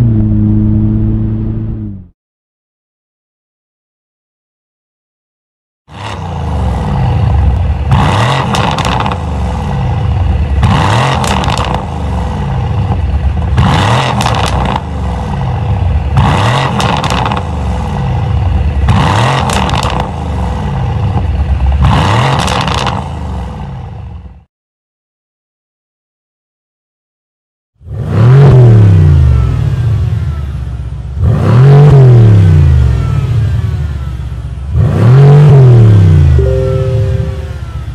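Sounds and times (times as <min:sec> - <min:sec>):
car engine revving: 0:05.9 - 0:18.3, 0:31.2 - 0:37.9.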